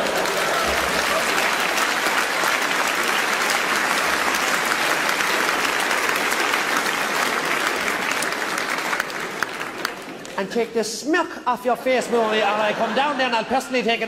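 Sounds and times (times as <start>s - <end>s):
large audience applauding: 0.0s - 10.5s.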